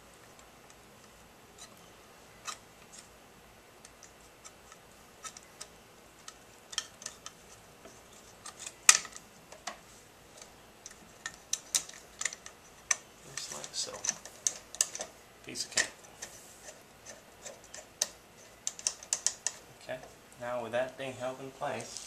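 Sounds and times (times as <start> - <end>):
small hard parts clicking: 3.8 - 7.6, 8.4 - 16.3, 17.0 - 19.6.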